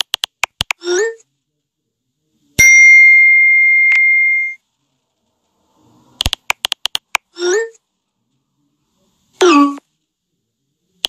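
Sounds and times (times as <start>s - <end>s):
phone keyboard clicks: 0.0s - 0.8s, 6.2s - 7.3s.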